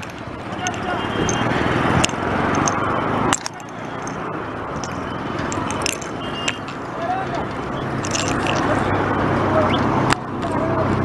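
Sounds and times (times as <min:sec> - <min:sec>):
bicycle clicks and rattles: 0:00.0 - 0:06.9, 0:07.9 - 0:08.9
wind and road noise: 0:00.0 - 0:11.0.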